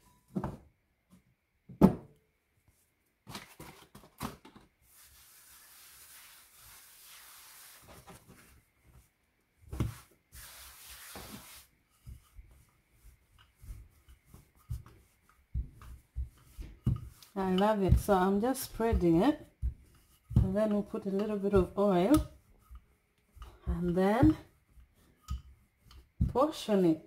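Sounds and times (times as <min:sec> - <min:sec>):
palm rubbing floured dough: 0:04.8 - 0:27.0
dull thumps of patting dough: 0:08.0 - 0:10.2, 0:11.0 - 0:27.0.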